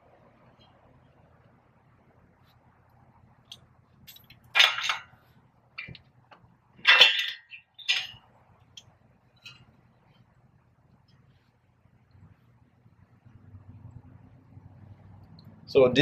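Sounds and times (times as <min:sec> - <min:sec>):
metal clinks and clanks: 0:04.0 - 0:05.2, 0:06.8 - 0:08.3.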